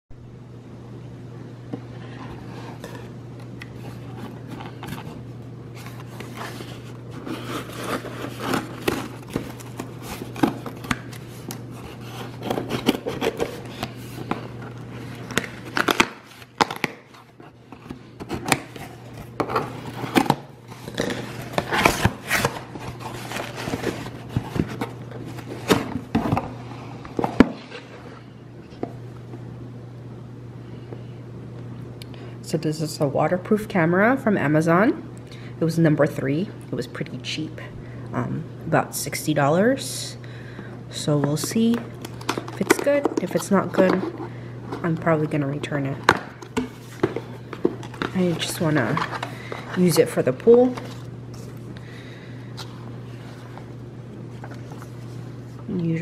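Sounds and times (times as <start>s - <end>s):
steady low hum: 0.1s - 56.0s
cardboard tearing and rustling: 3.7s - 26.6s.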